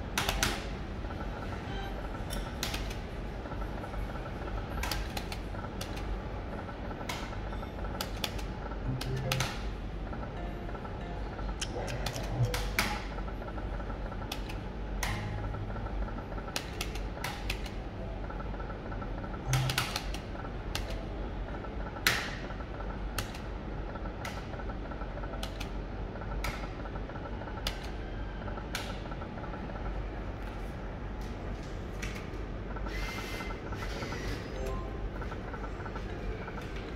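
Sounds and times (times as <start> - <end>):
low machine hum: 0.0 - 36.9
slot machine clicks: 7.0 - 13.3, 19.4 - 21.0, 34.4 - 36.9.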